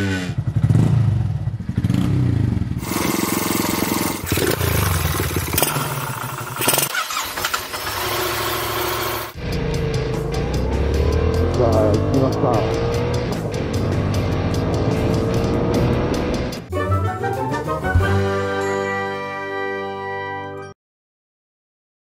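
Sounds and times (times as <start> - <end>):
motorcycle engines revving: 0.0 - 16.7.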